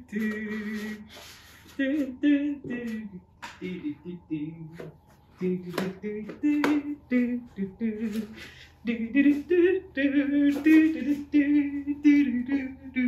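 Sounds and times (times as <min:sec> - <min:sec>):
woman singing unaccompanied: 0:00.0 - 0:13.0.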